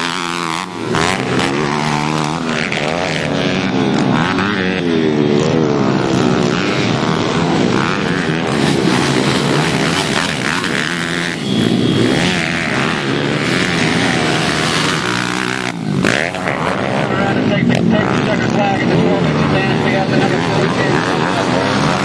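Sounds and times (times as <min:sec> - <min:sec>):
pit bike engines revving: 0:00.0 - 0:22.0.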